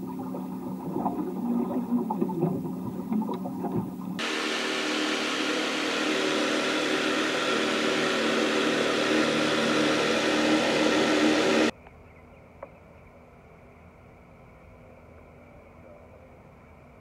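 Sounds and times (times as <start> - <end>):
boat motor humming: 0.0 - 11.7
loud rushing noise: 4.2 - 11.7.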